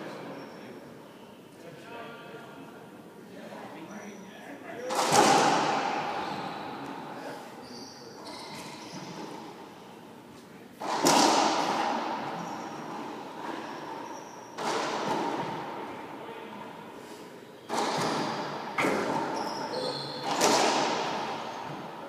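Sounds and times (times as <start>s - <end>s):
racquetball cracks echoing: 4.9s - 7.1s, 10.8s - 16.1s, 17.6s - 19.5s, 20.1s - 22.0s.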